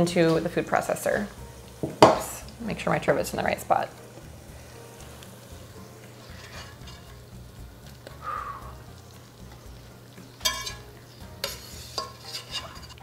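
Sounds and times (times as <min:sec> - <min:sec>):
hot oil sizzling: 0:00.0 - 0:13.0
metal utensil scraping a pot: 0:06.2 - 0:07.3, 0:10.3 - 0:13.0.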